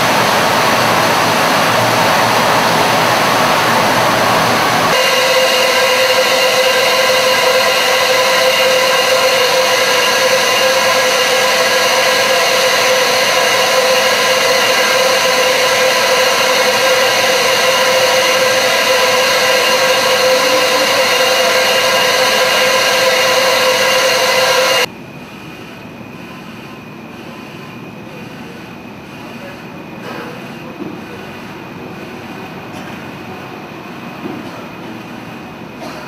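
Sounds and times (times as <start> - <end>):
machinery whining hiss: 0.0 - 24.9.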